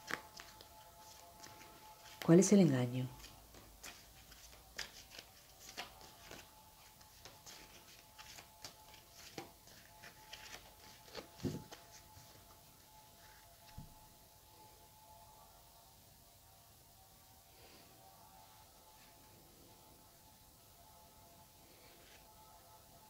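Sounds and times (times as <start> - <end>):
cards shuffling: 0.0 - 2.4, 3.0 - 12.5.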